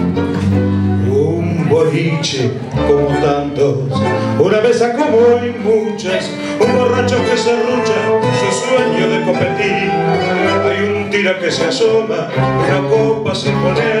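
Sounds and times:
guitar: 0.0 - 14.0
tango orchestra playing: 0.0 - 14.0
violins: 0.0 - 14.0.

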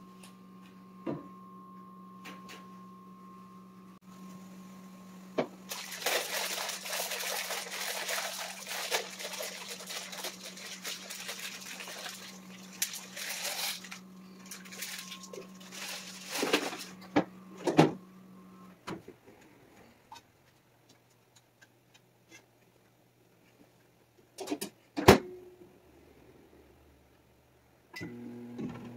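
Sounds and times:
low hum: 0.0 - 20.0
pot of water boiling: 5.7 - 15.8.

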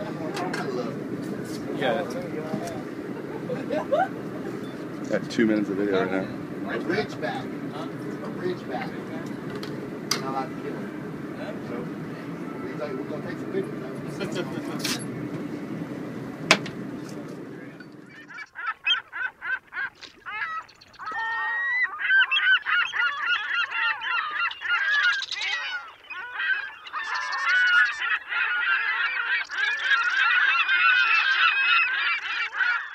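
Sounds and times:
low steady rumble: 0.0 - 18.4
flock of birds squawking: 0.0 - 32.9.

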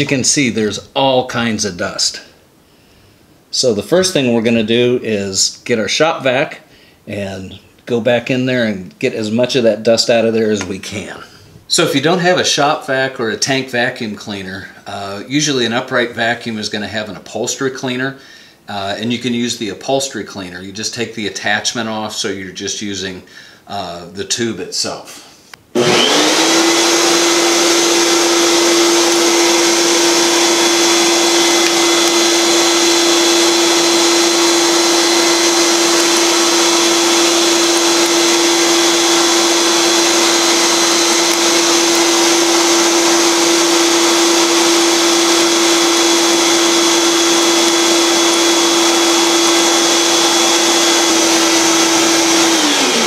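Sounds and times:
shop vac whining: 0.0 - 2.3, 25.5 - 53.0
hose sucking dust: 25.8 - 53.0.

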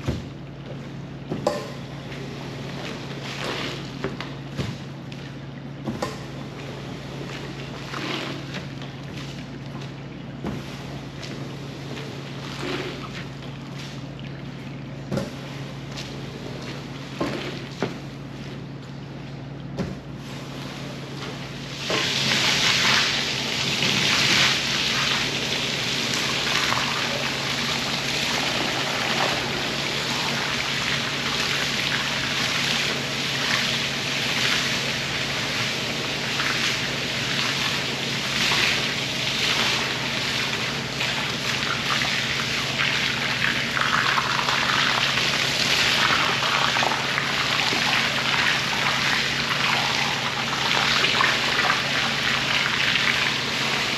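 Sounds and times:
water spraying and splashing: 21.7 - 53.9.

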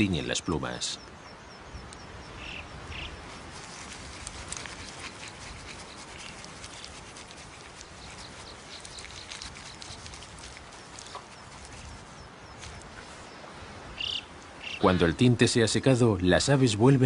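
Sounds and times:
high bird calls: 0.0 - 15.3
small ticks and patters: 1.8 - 13.4.

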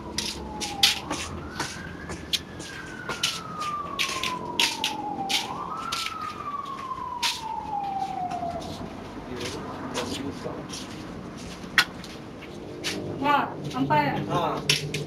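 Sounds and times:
emergency siren wailing: 0.0 - 10.9.

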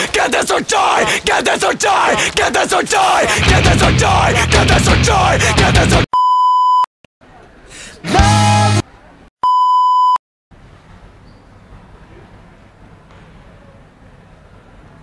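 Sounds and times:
music: 3.2 - 6.0, 8.1 - 8.8.

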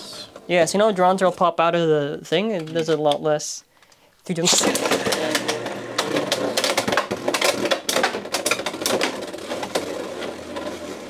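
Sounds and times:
spinning tops whirring: 4.4 - 11.0.

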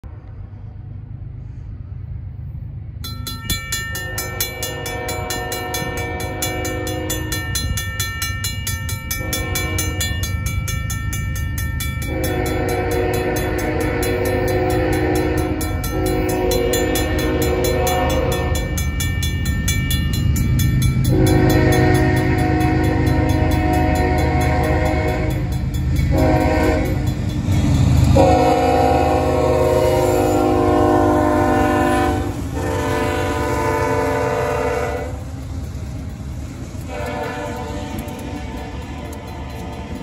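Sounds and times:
train rumble: 0.0 - 40.0
crossing bell ringing: 3.0 - 40.0
train horn blasts: 4.0 - 7.8, 9.1 - 10.3, 12.0 - 18.9, 21.0 - 27.1, 28.0 - 35.2, 36.8 - 40.0.

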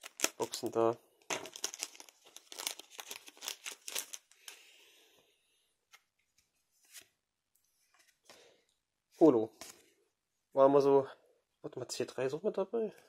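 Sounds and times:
foil wrapper crinkling: 0.0 - 4.6
soft clicks of cards handled: 5.9 - 8.4.

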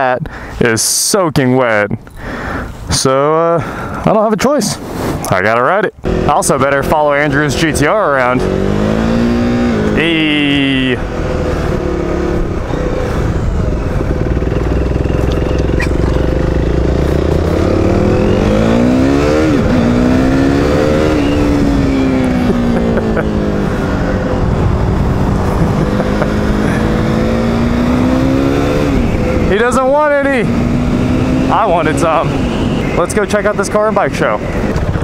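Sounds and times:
motorcycle engine accelerating: 6.0 - 35.0
wind rush: 8.5 - 35.0.

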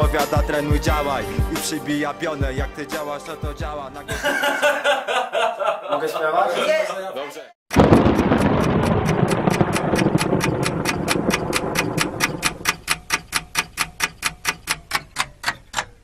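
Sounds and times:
loud burst of noise: 7.7 - 12.8
clock ticking: 7.7 - 16.0.

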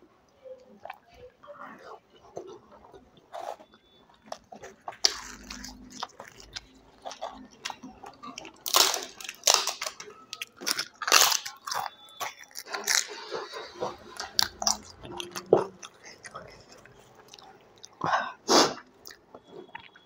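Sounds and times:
chewing: 0.6 - 20.0
crunchy bites: 3.4 - 13.3.

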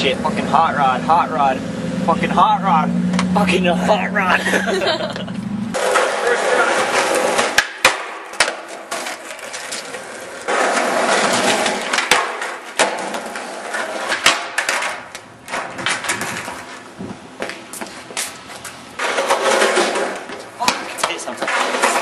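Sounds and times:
skateboard wheels rolling on pavement: 2.8 - 22.0
skateboard clacking on ground: 5.8 - 16.8, 17.5 - 22.0.

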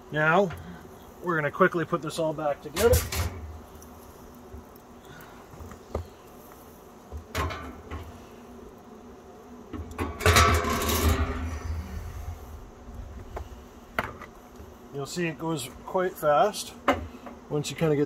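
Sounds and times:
metal clank: 10.0 - 11.3
metal plate scraping in drum: 10.0 - 11.7.

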